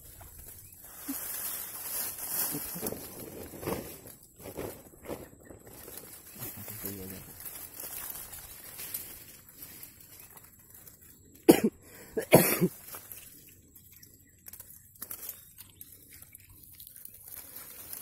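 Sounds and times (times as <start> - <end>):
person coughing: 11.5 - 12.7.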